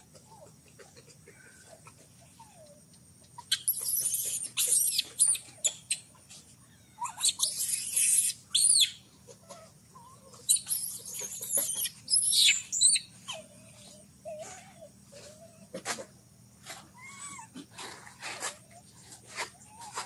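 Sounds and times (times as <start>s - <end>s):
baby monkey screaming: 3.4s - 6.1s, 6.7s - 15.6s, 16.9s - 17.6s.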